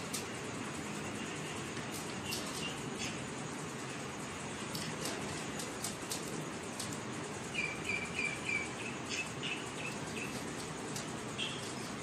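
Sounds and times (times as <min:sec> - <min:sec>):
steady background hiss: 0:00.0 - 0:12.0
parrot chirping: 0:07.4 - 0:10.5, 0:11.3 - 0:12.0.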